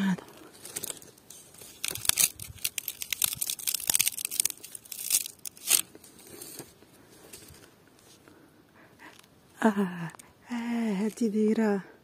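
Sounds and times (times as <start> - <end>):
dry palm fronds rustling: 0.0 - 8.4.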